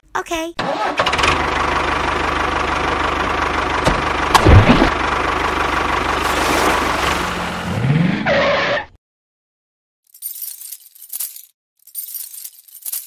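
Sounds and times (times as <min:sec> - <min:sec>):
tractor engine chugging: 0:00.6 - 0:07.7.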